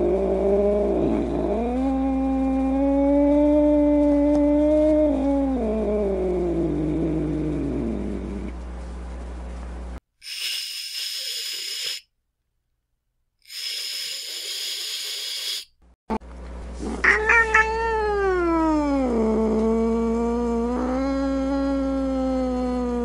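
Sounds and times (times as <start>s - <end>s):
cat hissing: 10.2s - 12.0s, 13.5s - 15.7s, 16.8s - 18.0s
cat yowling low: 17.0s - 19.8s, 20.4s - 23.0s.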